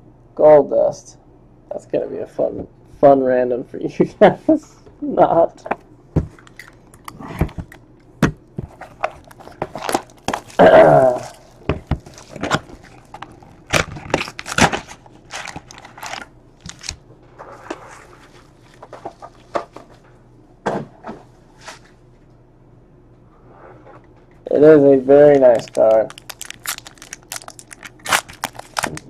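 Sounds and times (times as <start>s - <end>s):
wrappers rustling and crinkling: 8.6s - 17.0s, 25.2s - 29.0s.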